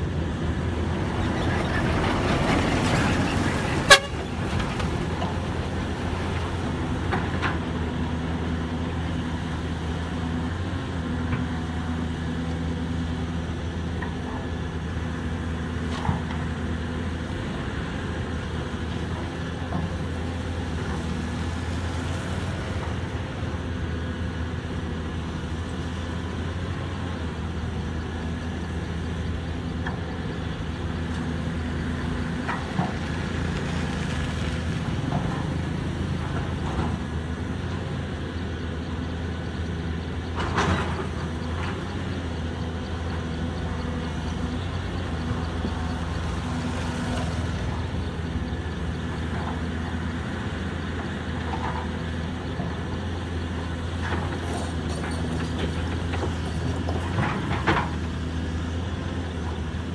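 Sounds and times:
heavy diesel engines running: 0.0 - 59.9.

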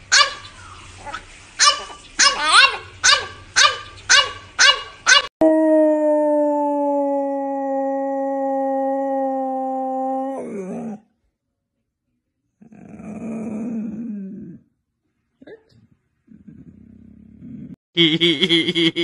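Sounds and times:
dog barking sharply: 0.1 - 0.5, 1.6 - 5.3
dog howling: 5.2 - 11.0.

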